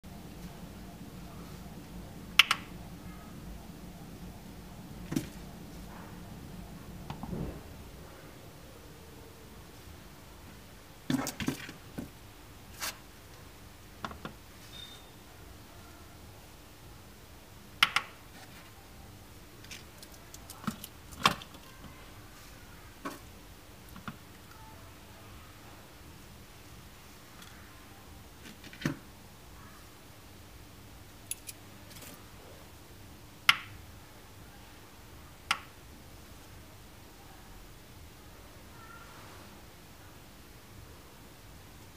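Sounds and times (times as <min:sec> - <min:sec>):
faint beep: 0:14.7 - 0:15.2, 0:24.5 - 0:24.9.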